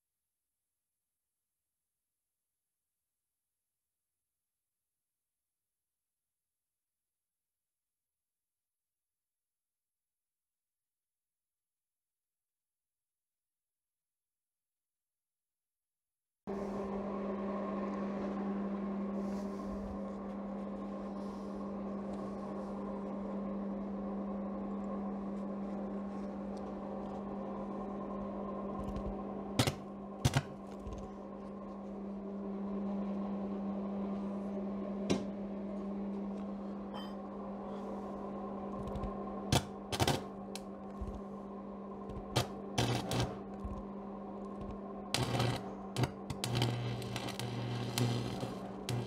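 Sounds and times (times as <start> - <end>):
arc welder humming: 27.2 - 33.6, 38.4 - 49.0.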